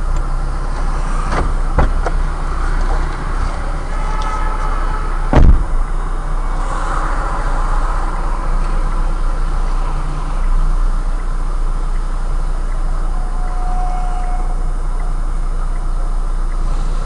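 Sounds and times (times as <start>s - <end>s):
car engine idling: 0.0s - 17.0s
loud sharp thump: 5.3s - 5.8s.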